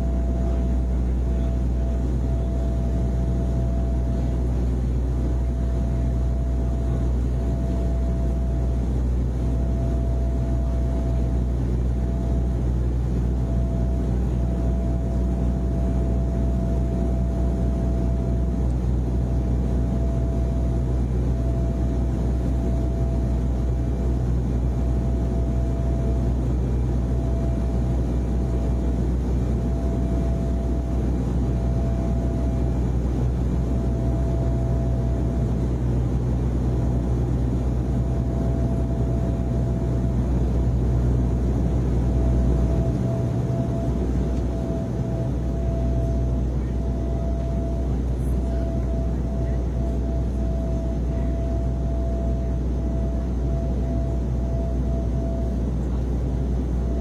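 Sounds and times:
faint tone: 0.0s - 4.7s, 9.4s - 12.5s, 13.2s - 18.6s, 33.6s - 35.4s, 41.9s - 56.0s
airliner cabin drone: 0.0s - 57.0s
low hum: 0.0s - 57.0s.

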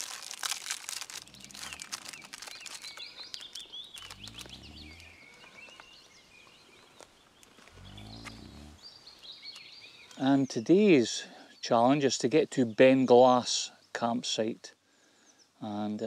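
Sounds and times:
plastic wrapper crinkling: 0.0s - 4.6s
birds singing and chirping: 0.9s - 16.0s.

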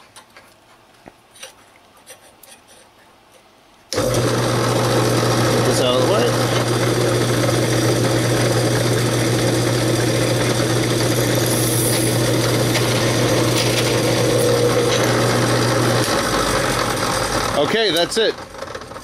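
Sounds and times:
drill press motor hum: 3.9s - 19.0s.

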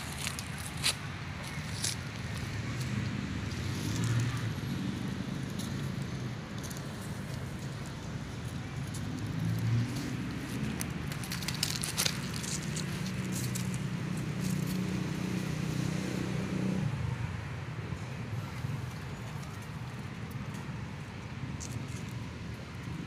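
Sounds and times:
vehicle engine humming: 0.0s - 23.0s.

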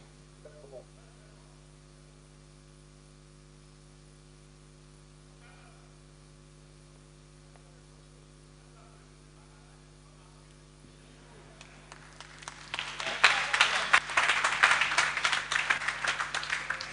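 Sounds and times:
low electrical mains hum: 0.0s - 16.9s.

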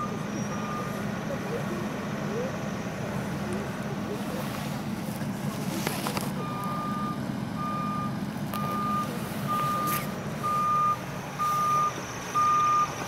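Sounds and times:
backup alarm beeping: 0.0s - 1.0s, 6.4s - 13.0s
engine idling: 0.0s - 13.0s.

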